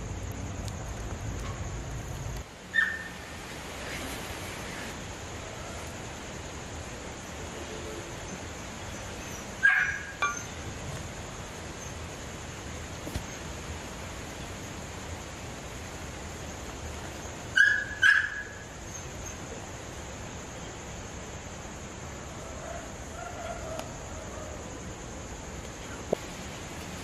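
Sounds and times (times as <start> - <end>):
steady background hiss: 0.0 - 27.0
dog barking: 9.6 - 10.5, 17.6 - 18.6.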